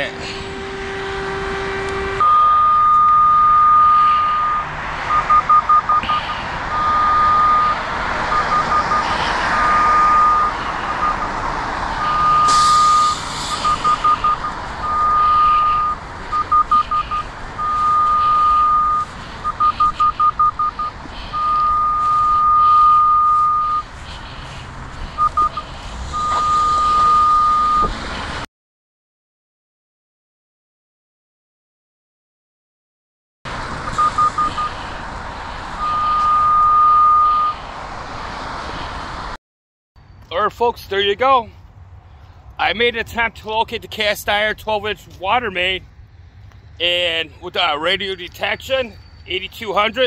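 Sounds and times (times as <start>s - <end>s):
traffic hum: 0.0s - 28.5s, 33.5s - 39.4s, 40.0s - 50.0s
locator high-pitched beeping: 1.8s - 11.4s, 12.0s - 23.9s, 25.2s - 27.9s, 33.9s - 34.8s, 35.8s - 37.6s.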